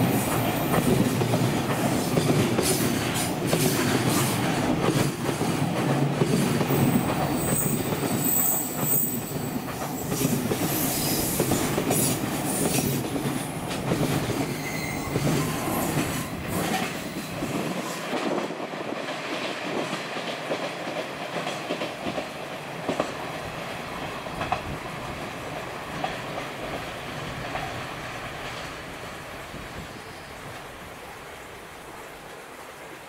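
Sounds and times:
train wheels clattering over rail joints: 0.0 - 23.3
train rumble: 0.0 - 33.0.

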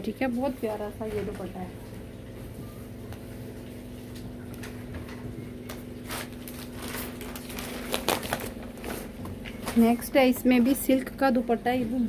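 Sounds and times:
steady low hum: 0.0 - 12.0
plastic packaging crinkling: 6.0 - 10.0.

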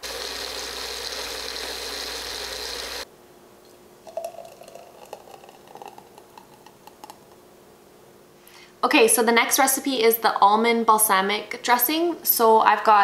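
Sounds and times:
food processor motor running: 0.0 - 3.0
thick dressing pouring into jar: 4.0 - 7.4.

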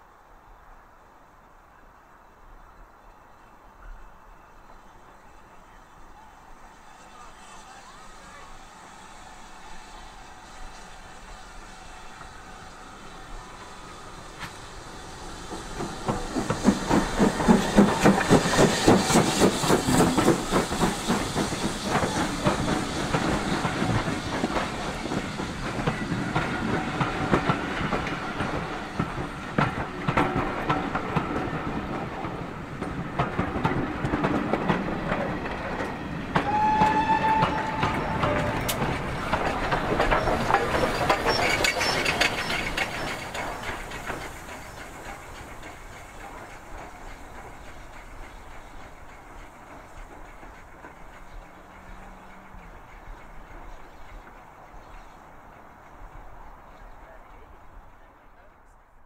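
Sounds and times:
steam locomotive exhaust beating: 6.5 - 57.8
train wheels clicking over rail joints: 7.1 - 57.8
high wheel squeal: 36.4 - 45.8.

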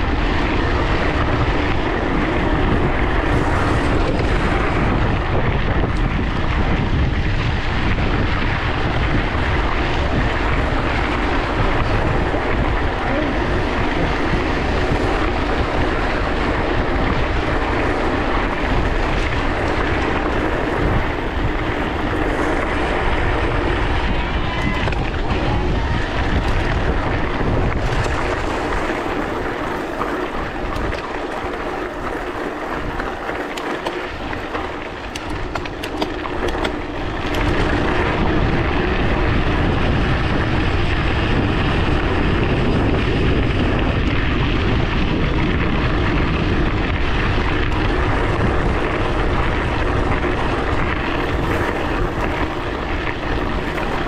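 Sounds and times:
bicycle tyres rolling on gravel: 0.0 - 54.0
wind buffeting microphone: 0.0 - 54.0
rattling clicks: 33.4 - 37.7.

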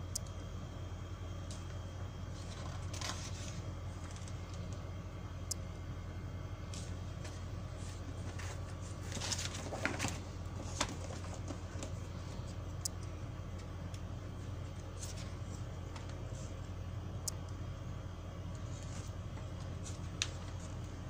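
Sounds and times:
steady low hum: 0.0 - 21.0
magazine page rustling: 2.3 - 4.8, 6.7 - 12.0
light paper clicks: 18.6 - 20.9.

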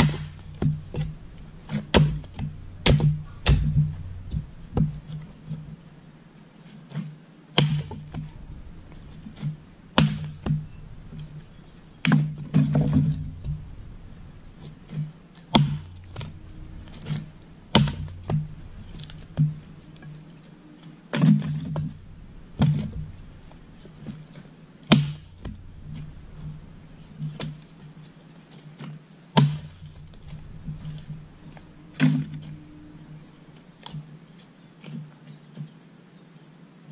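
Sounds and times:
axe chopping firewood: 0.0 - 5.6, 7.6 - 20.1, 21.1 - 27.7, 29.4 - 34.1.

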